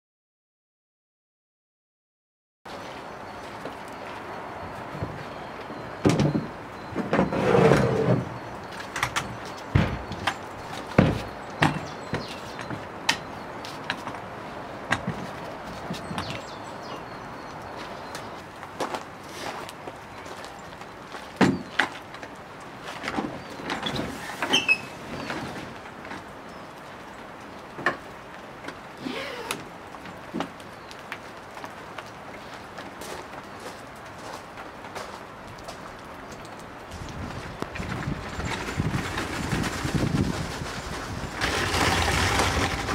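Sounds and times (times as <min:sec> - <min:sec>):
steady background noise: 0:02.7 - 0:42.9
scraping rustle: 0:22.8 - 0:26.3, 0:36.9 - 0:42.9
short creak: 0:23.8 - 0:25.5.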